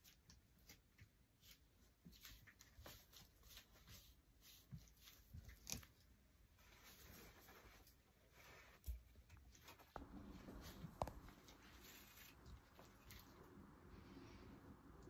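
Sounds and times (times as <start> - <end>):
faint rustles: 1.4 - 15.0.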